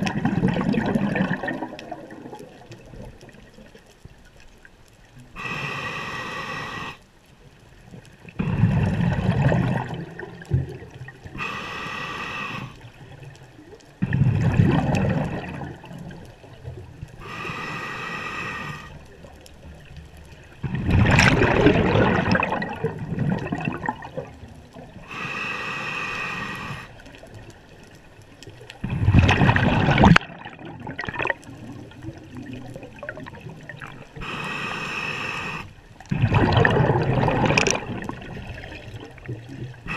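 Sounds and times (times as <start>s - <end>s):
gurgling exhaled bubbles: 0.0s - 3.8s, 8.3s - 11.7s, 13.9s - 17.2s, 20.6s - 25.2s, 28.8s - 34.4s, 35.5s - 39.9s
scuba regulator inhale hiss: 5.4s - 7.0s, 11.4s - 12.9s, 17.2s - 19.1s, 25.0s - 27.0s, 34.2s - 35.8s.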